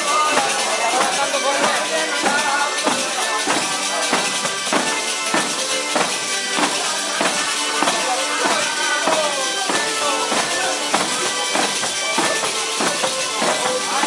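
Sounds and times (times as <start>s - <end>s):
acoustic guitar: 0.0s - 14.0s
frame drums with jingles: 0.0s - 14.0s
violin: 0.0s - 14.0s.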